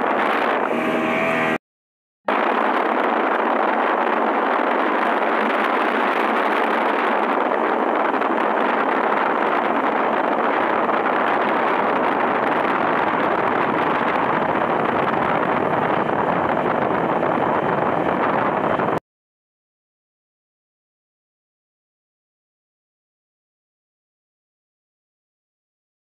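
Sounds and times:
wind on microphone: 0.0s - 1.6s, 2.3s - 19.0s
churning boat wake: 2.3s - 19.0s.

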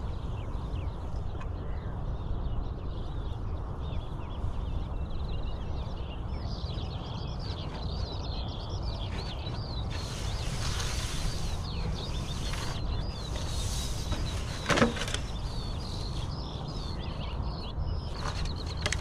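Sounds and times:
birds chirping and singing: 0.0s - 19.0s.

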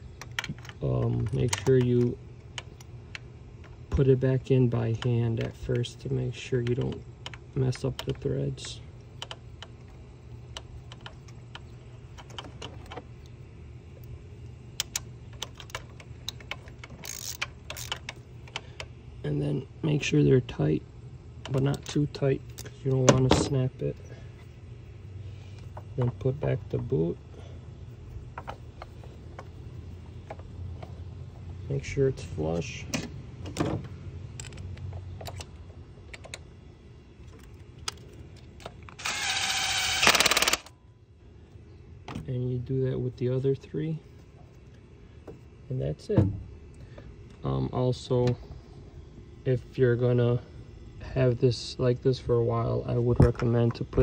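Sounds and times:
low hum: 0.0s - 54.0s
socket wrench ratchet clicking: 14.8s - 18.9s, 38.9s - 40.7s.

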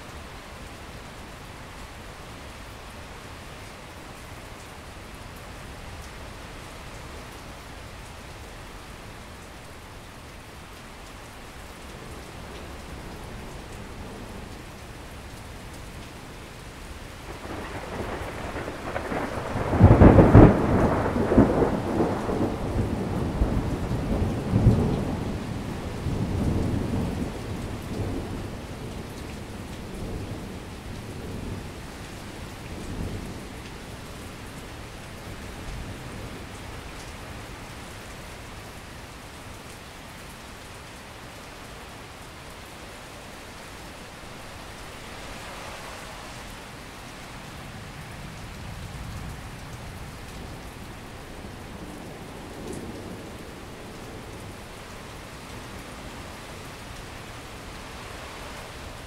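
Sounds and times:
steady rain: 0.0s - 59.0s
rolling thunder: 17.3s - 28.4s.

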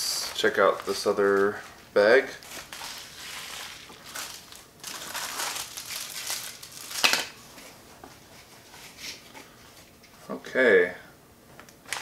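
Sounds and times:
cloth bag and packaging crinkling: 0.2s - 7.4s.

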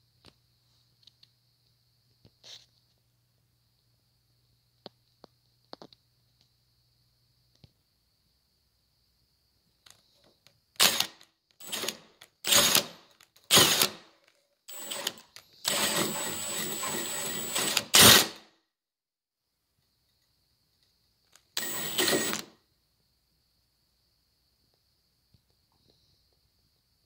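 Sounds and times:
hole saw cutting through door: 10.8s - 14.1s, 14.7s - 18.4s, 21.6s - 22.5s.

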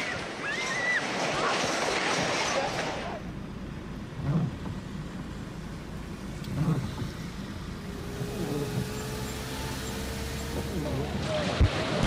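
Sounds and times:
low street rumble: 0.0s - 12.0s
long steady tone: 4.9s - 11.4s.

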